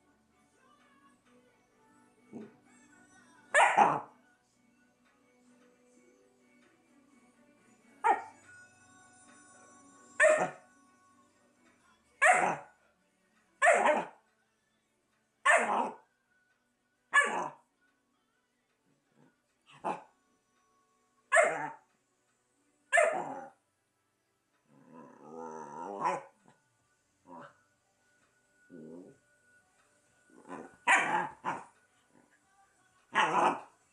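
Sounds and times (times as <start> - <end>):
puppy barking: 3.5 - 4.1, 8.0 - 8.3, 10.2 - 10.6, 12.2 - 12.7, 13.6 - 14.2, 15.4 - 16.0, 17.1 - 17.6, 21.3 - 21.8, 22.9 - 23.5, 26.0 - 26.4, 30.5 - 31.7, 33.1 - 33.7.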